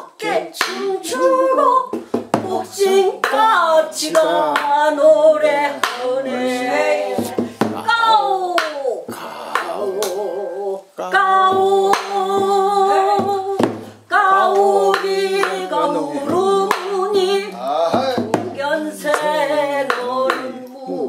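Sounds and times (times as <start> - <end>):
person singing folk song: 0.0 - 21.0
hands clapping: 0.6 - 0.9, 3.2 - 3.5, 4.1 - 4.8, 5.8 - 6.1, 8.6 - 8.8, 9.6 - 10.2, 11.6 - 12.6, 14.5 - 15.7, 16.4 - 17.0, 19.1 - 19.3, 19.9 - 20.8.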